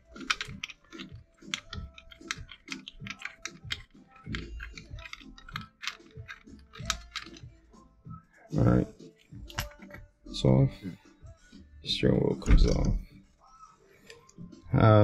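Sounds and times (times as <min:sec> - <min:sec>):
ratchet wrench clicking: 0:00.1 - 0:07.5.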